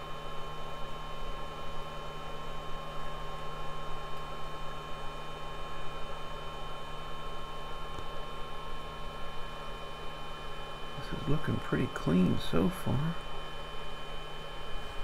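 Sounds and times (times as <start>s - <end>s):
electrical hum and hiss: 0.0s - 15.0s
thin high whine: 8.5s - 15.0s.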